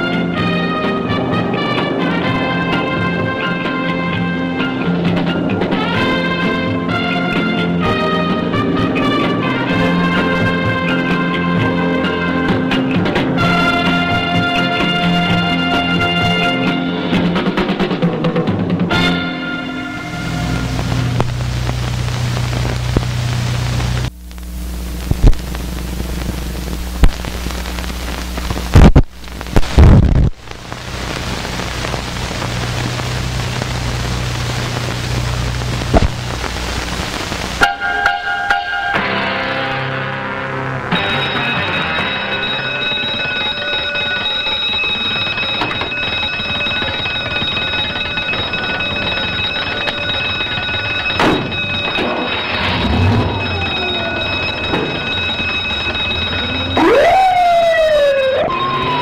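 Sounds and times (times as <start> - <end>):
film soundtrack hiss: 0.0 - 59.0
low hum: 0.0 - 59.0
crackle: 19.8 - 38.6, 40.8 - 57.0
fire alarm bell ringing: 37.6 - 39.3, 40.9 - 59.0.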